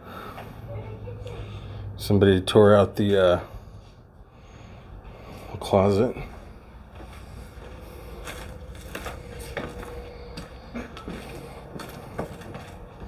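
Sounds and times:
footsteps crunching over debris: 0:06.9 - 0:13.0.

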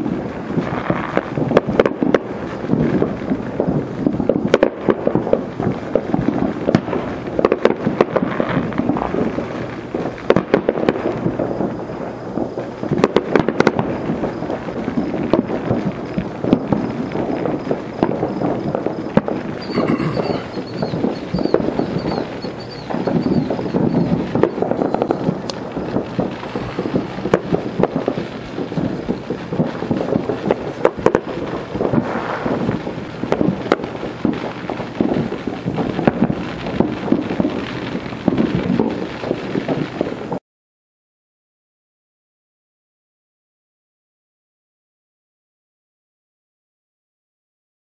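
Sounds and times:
fireworks pops and crackles: 0:00.0 - 0:40.4
steady rumble: 0:13.8 - 0:37.5
high whistle: 0:19.6 - 0:25.3.

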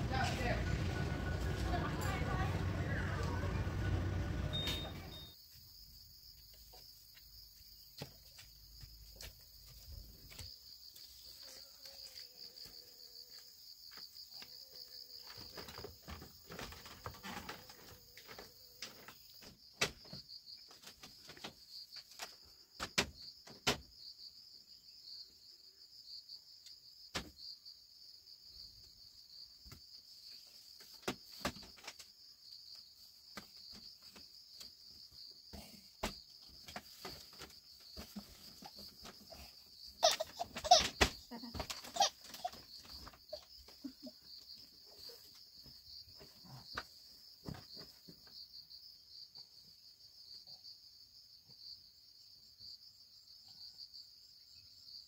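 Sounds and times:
insects trilling: 0:04.8 - 0:55.0.

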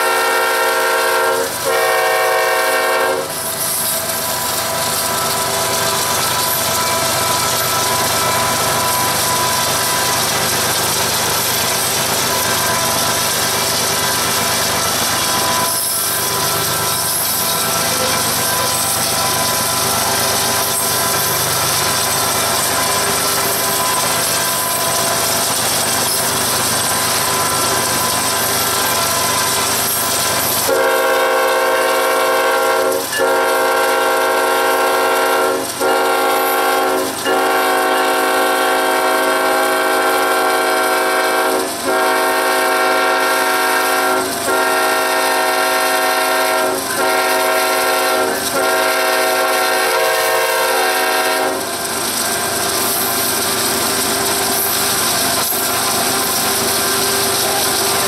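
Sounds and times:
locomotive air horn blasts: 0:00.0 - 0:03.4, 0:30.6 - 0:51.7
moving train rushing: 0:00.0 - 0:58.0.

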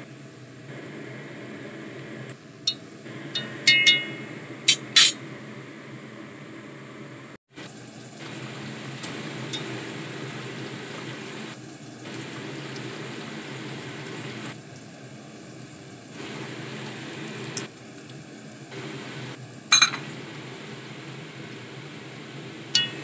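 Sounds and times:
water boiling hard in a pan: 0:07.5 - 0:23.0.

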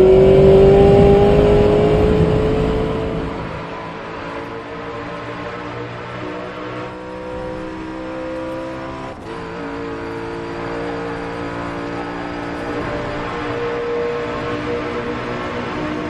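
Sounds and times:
race car engine revving: 0:00.0 - 0:16.0.

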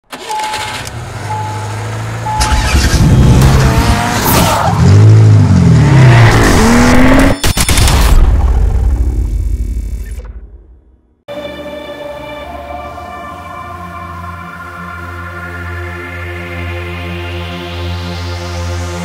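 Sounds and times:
car engine revving: 0:00.1 - 0:07.4
short beeps: 0:00.2 - 0:01.7, 0:02.3 - 0:02.7.

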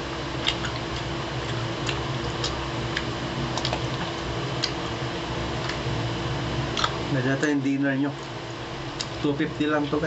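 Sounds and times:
chewing smacks and clicks: 0:00.4 - 0:05.0, 0:05.6 - 0:05.8, 0:06.7 - 0:07.0, 0:09.0 - 0:09.2.

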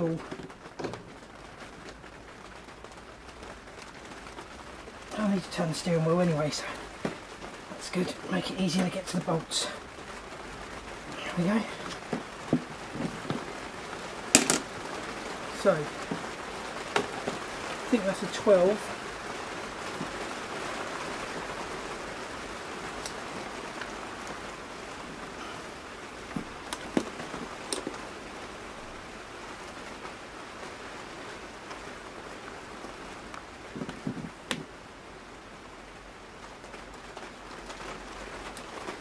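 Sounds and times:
steady rain heard indoors: 0:00.0 - 0:39.0
tool clicks and knocks: 0:14.4 - 0:14.7.

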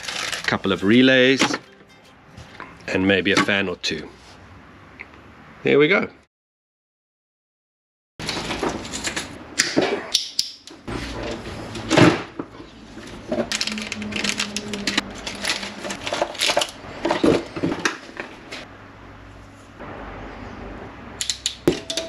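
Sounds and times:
plastic bags rustling: 0:00.0 - 0:01.7, 0:12.6 - 0:18.6.

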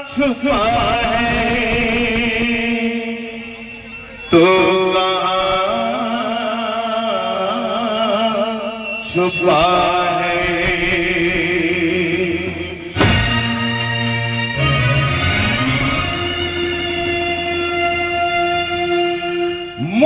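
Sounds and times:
man singing through loudspeakers: 0:00.0 - 0:13.0, 0:17.4 - 0:20.0
held accompaniment note: 0:12.5 - 0:20.0.

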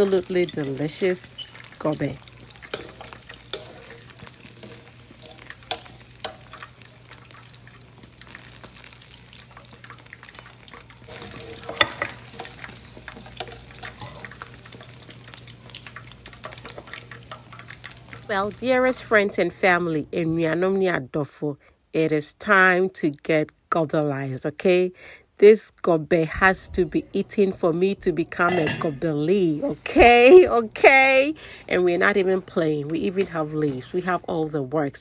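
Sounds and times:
deep-frying sizzle: 0:00.0 - 0:20.0.

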